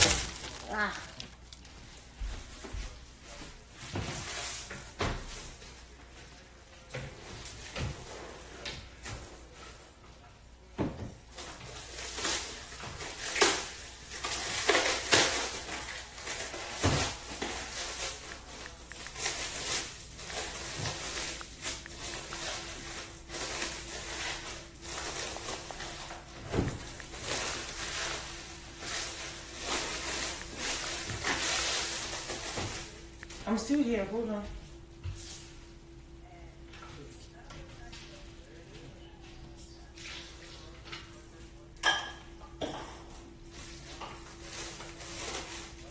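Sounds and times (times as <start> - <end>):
hands handling things: 0.0 - 2.6
faint steady hum: 0.0 - 45.9.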